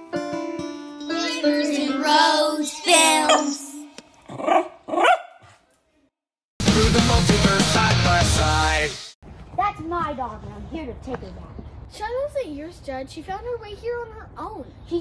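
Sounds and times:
plucked string music: 0.0s - 2.1s
dog barking and howling: 3.2s - 3.6s, 4.4s - 5.4s.

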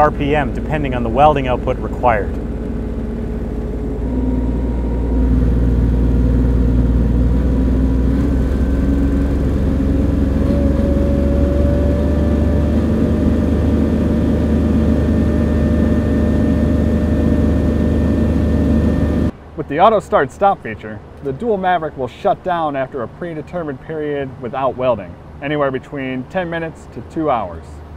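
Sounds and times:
welder diesel engine revving: 0.0s - 19.3s.

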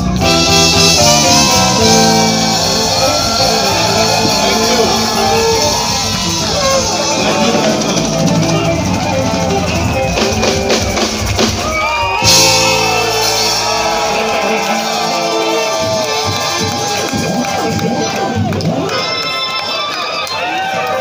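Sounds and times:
live band music: 0.0s - 19.2s
sharp drum strokes: 0.4s - 16.9s.

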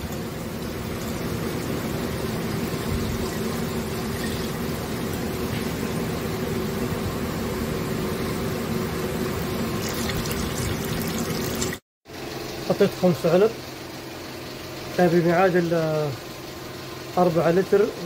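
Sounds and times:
fluid pouring into a jug: 9.8s - 11.8s
truck engine idling: 12.1s - 18.0s.

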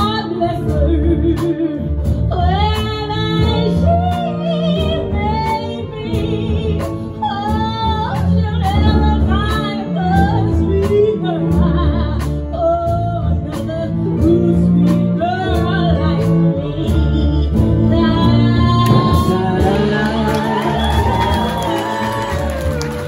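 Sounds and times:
bowed strings and double bass: 0.0s - 23.0s
male and female singers: 13.6s - 23.0s
steady drum beat: 17.6s - 23.0s.

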